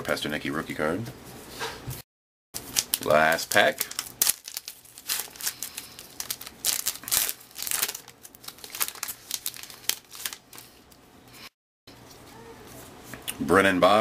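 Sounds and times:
plastic wrapper crinkling: 2.6 - 11.0.

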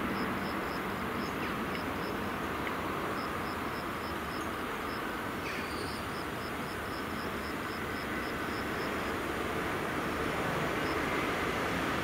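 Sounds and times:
insect chirping: 0.0 - 9.1, 10.7 - 11.2.

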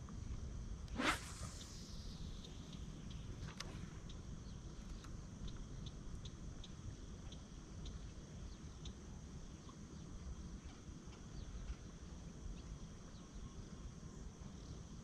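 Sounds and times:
high-pitched hum: 0.2 - 10.8.

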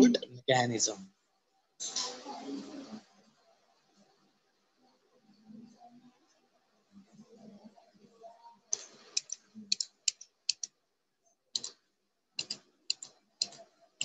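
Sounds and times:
computer mouse clicks: 8.7 - 10.7, 11.5 - 11.8, 12.4 - 13.6.

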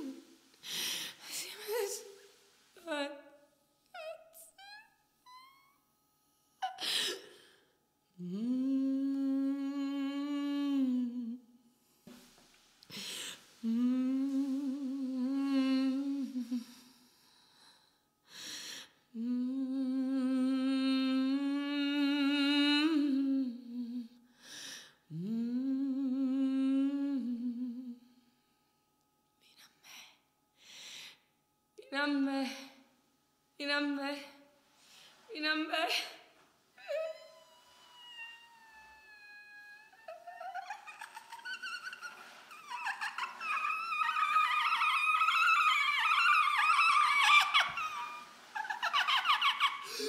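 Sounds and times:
person humming long notes: 8.2 - 11.4, 13.6 - 16.8, 19.2 - 24.2, 25.1 - 28.1, 36.8 - 48.6.

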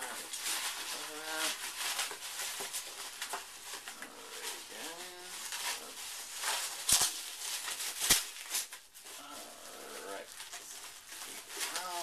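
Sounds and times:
bubble wrap and cardboard rustling: 0.0 - 12.0.

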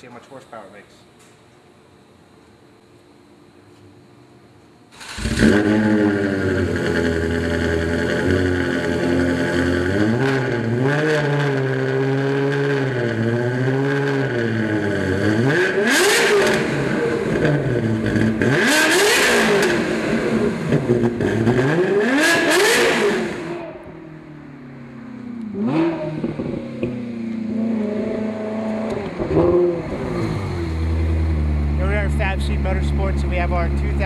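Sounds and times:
car engine revving: 5.0 - 34.0
car accelerating past: 25.1 - 31.8.

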